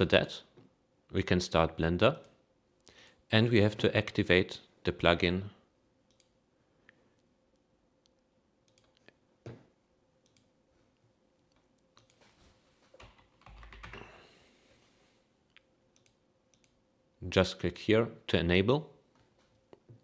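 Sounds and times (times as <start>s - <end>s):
computer keyboard typing: 13.0s - 14.1s.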